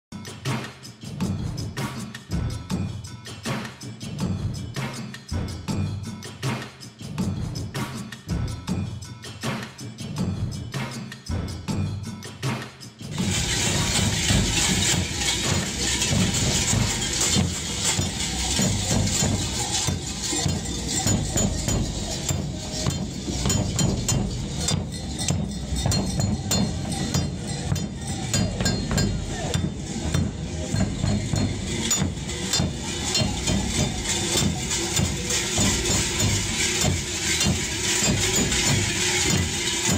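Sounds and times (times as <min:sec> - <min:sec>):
snare drums: 0:00.1 - 0:39.9
bass drums beating: 0:02.4 - 0:03.1, 0:07.2 - 0:09.1, 0:13.1 - 0:39.9.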